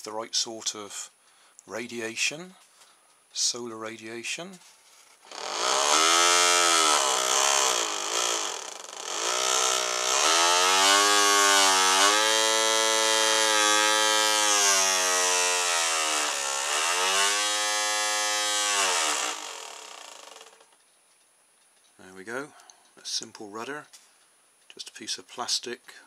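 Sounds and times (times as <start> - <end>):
small electric motor whining: 5.2 - 20.7.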